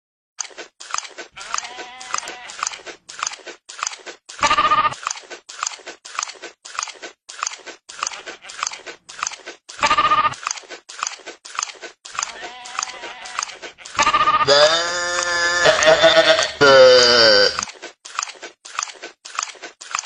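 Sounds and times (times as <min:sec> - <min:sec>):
goat bleat: 0:01.4 - 0:02.7, 0:12.2 - 0:17.7.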